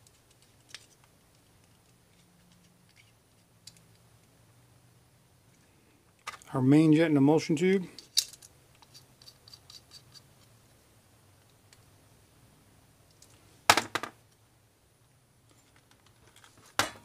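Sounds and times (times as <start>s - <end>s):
screwdriver clicking and scraping metal: 0.0s - 4.0s, 8.0s - 10.6s.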